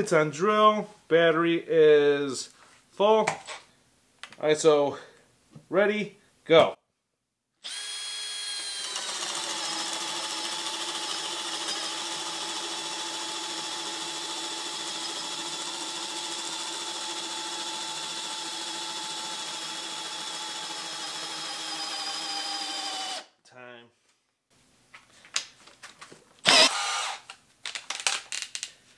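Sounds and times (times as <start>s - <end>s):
drill boring into wood: 7.6s - 23.3s, 26.4s - 27.3s.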